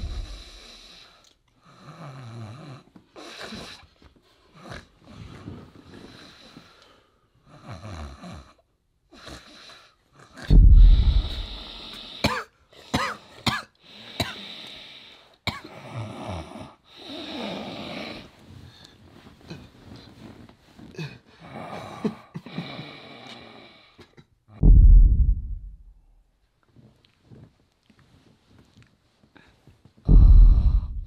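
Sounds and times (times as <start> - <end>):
man snoring: 11.0 - 12.2.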